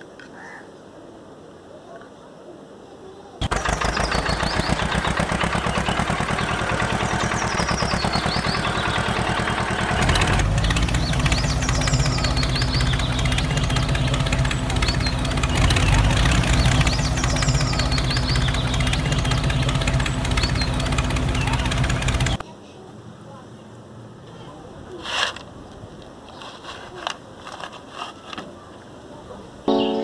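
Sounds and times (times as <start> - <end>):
tractor engine chugging: 3.4 - 22.4.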